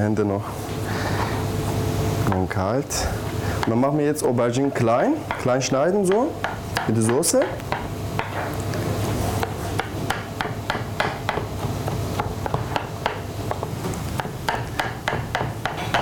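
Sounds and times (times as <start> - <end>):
knife chopping on cutting board: 5.3 - 8.6, 9.4 - 16.0.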